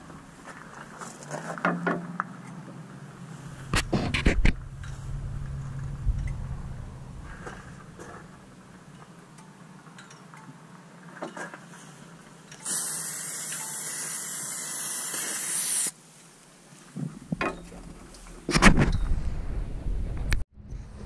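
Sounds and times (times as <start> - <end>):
aerosol spray hissing: 12.6 - 15.9.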